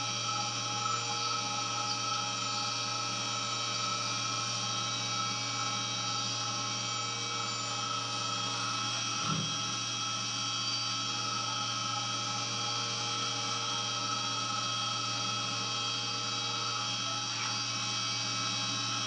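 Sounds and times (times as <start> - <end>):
milling machine spindle whine: 0.0 - 19.0.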